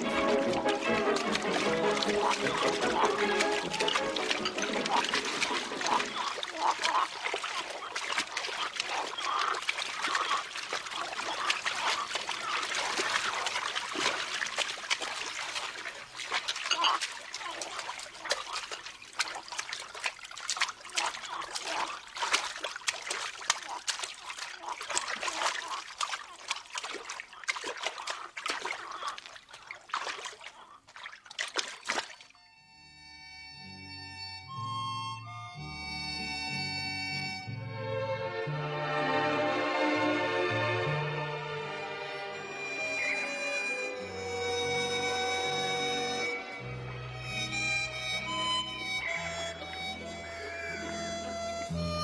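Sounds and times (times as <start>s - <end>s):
water splashing and sloshing: 0.0s - 32.4s, 44.1s - 51.8s
harmonica music: 32.4s - 52.0s.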